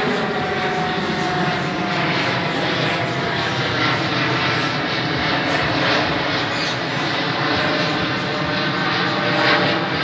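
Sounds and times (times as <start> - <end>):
jet engines roaring overhead: 0.0 - 10.0.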